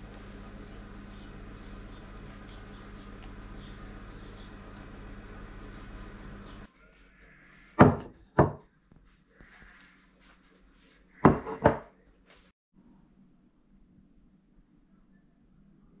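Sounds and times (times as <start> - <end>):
plates knocking on wooden table: 7.8 - 8.6, 11.2 - 11.9.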